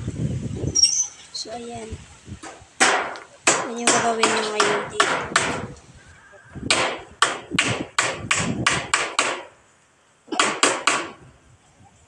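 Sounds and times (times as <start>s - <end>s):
hammer striking roofing sheet: 2.4s - 5.7s, 6.7s - 9.6s, 10.3s - 11.2s.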